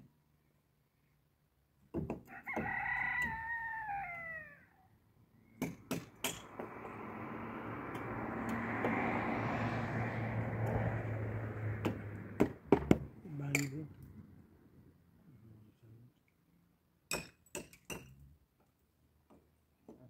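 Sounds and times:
rooster crowing: 2.3 - 4.9.

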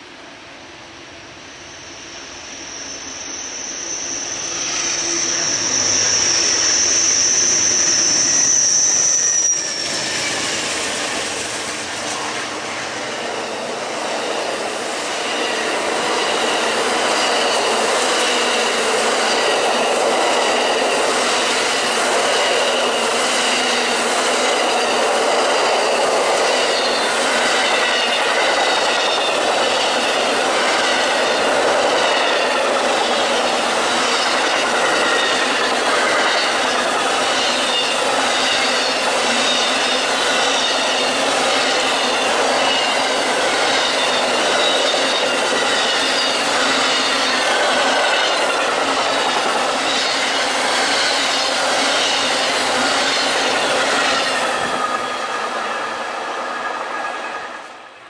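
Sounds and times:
high-pitched whine: 0.3 - 57.8
high squealing tones: 1.6 - 13.5
train wheels clattering on rail joints: 5.7 - 57.5.

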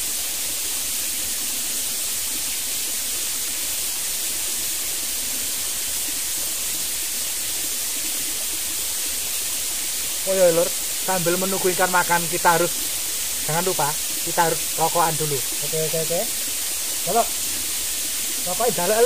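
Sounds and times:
stream running: 0.0 - 19.0.

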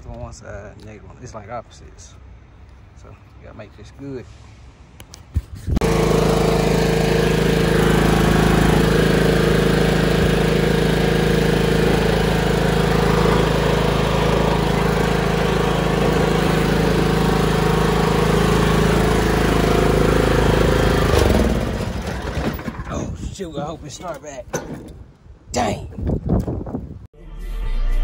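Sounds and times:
lawn mower engine running: 5.8 - 25.1.

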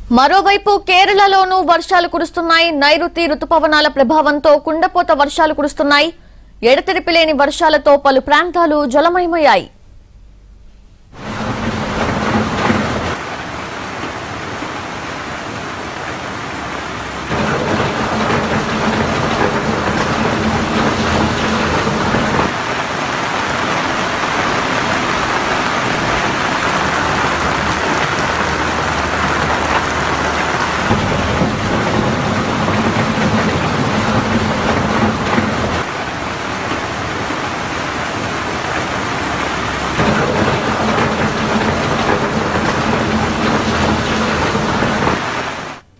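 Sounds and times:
heavy rain pouring: 11.1 - 45.9.

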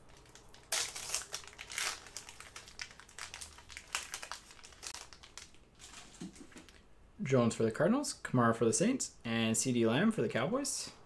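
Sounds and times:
foil wrapper tearing and crinkling: 0.0 - 6.8.

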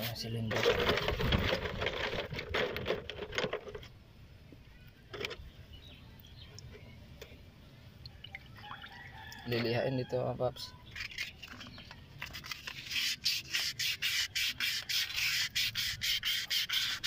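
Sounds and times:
rustling of plastic sheeting: 0.4 - 3.8.

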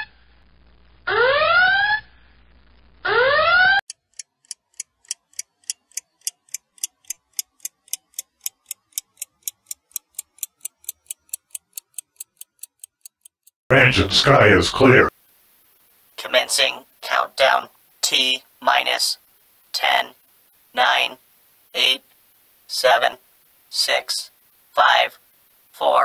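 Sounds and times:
clock ticking: 3.9 - 13.6.

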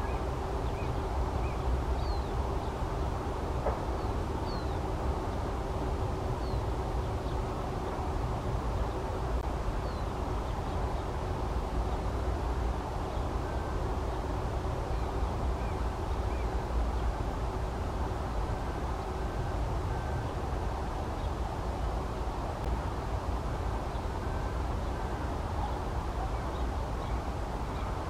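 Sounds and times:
small birds chirping: 0.0 - 2.8, 3.9 - 5.4, 6.4 - 7.5, 9.8 - 11.2
distant traffic rumble: 0.0 - 28.0.

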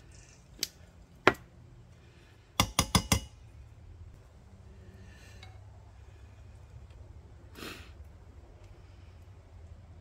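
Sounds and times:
low steady rumble: 3.2 - 10.0.

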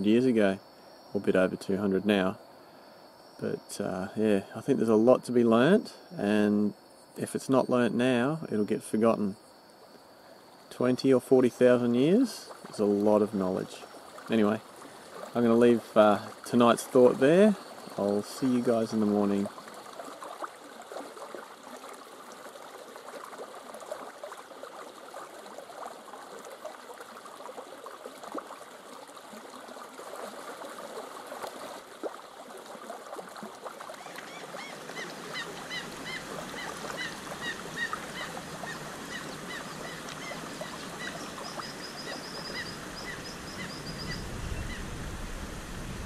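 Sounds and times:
birds chirping: 34.0 - 44.9.

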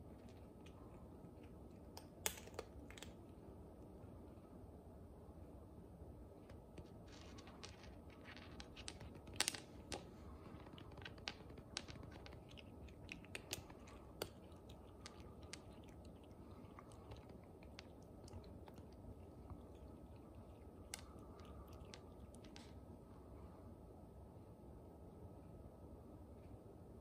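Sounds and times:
cat crunching dry kibble: 0.0 - 3.2, 7.1 - 22.8.

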